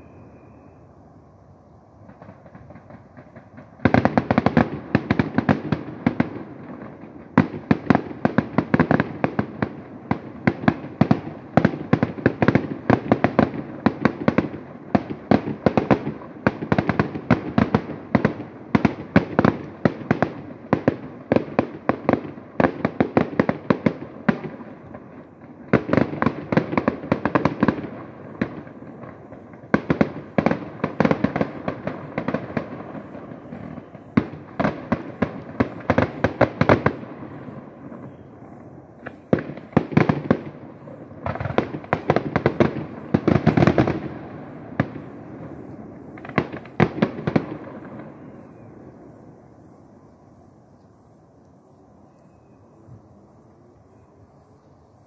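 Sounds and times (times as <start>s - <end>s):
fireworks shells bursting: 10.5s - 48.7s.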